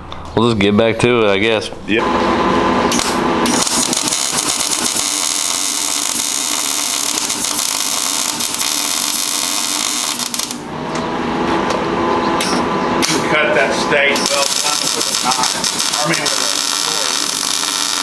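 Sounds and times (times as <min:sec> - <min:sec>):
electric arc welding crackling hiss: 0:02.9 - 0:10.6, 0:14.1 - 0:18.0.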